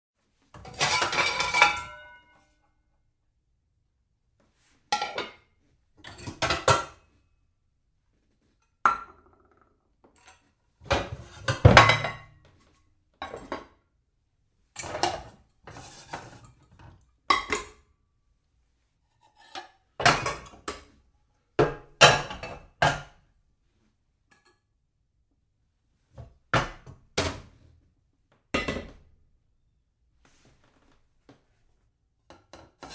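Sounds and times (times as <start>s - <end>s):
dishes clattering: 0.6s - 2.3s, 10.9s - 12.4s.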